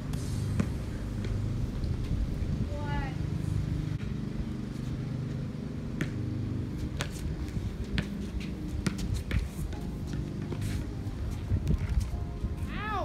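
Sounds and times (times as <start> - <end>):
steady low hum: 0.0 - 12.7
basketball bouncing on concrete: 0.6 - 1.4, 5.9 - 10.7.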